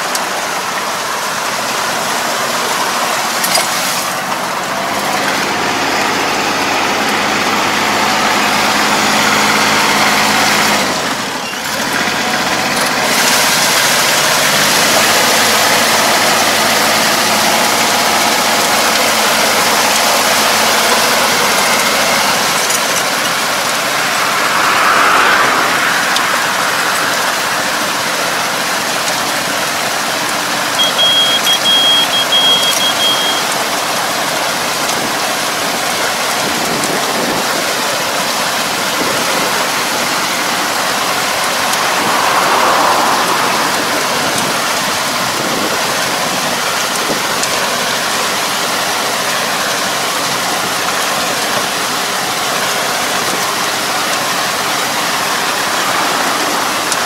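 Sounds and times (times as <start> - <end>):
tractor engine hum: 0.0 - 57.0
water and mud churning: 0.0 - 57.0
broken high-pitched tone: 30.7 - 33.5.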